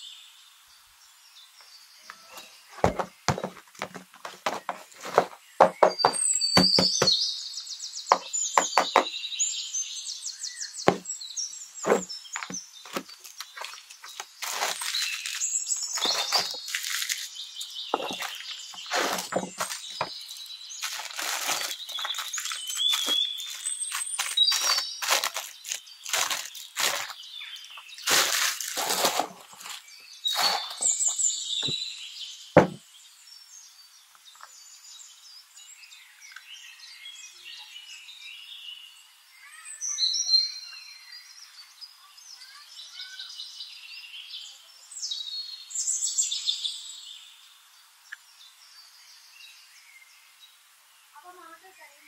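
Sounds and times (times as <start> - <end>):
cardboard flaps clicking and tapping: 2.8 - 7.2, 8.1 - 9.1, 11.9 - 13.1, 18.9 - 20.2, 32.6 - 32.8
plastic wrapping crinkling: 11.8 - 31.2.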